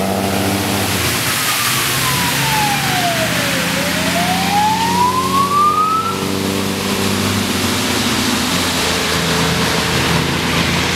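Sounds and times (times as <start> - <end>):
heavy vehicles engine hum: 0.0 - 10.9
tyres hissing on wet road: 0.0 - 10.9
siren wailing: 1.2 - 6.3.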